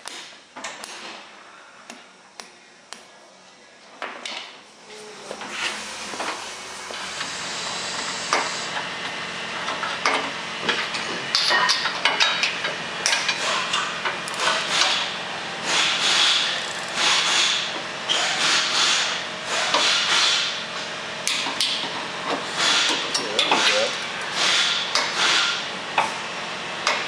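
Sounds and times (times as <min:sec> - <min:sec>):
ratchet wrench ratcheting: 0:16.2 - 0:17.2.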